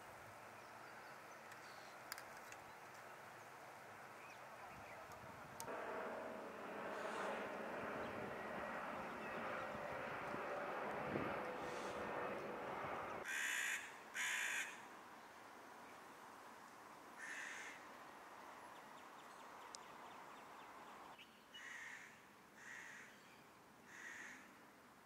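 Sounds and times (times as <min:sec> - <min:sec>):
steady noise: 0:05.7 - 0:09.7
crow cawing: 0:13.2 - 0:14.8, 0:17.2 - 0:17.8, 0:21.6 - 0:23.2, 0:23.9 - 0:24.5.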